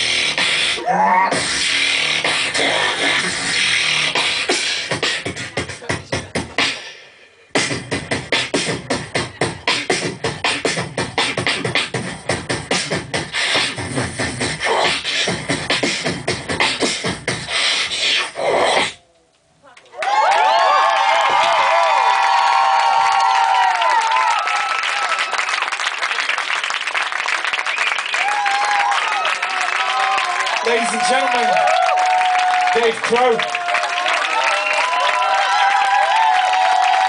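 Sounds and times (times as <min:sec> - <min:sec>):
person beatboxing into microphone: 0:00.0 - 0:19.0.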